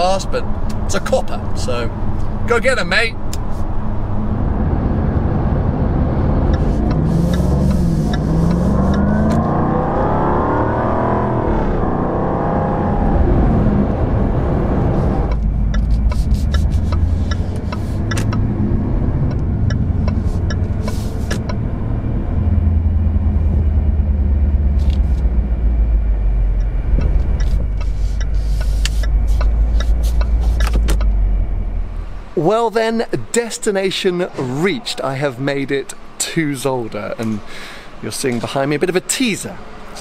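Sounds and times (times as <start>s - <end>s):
car engine revving: 3.7s - 33.5s
sharp clicks: 15.3s - 18.5s.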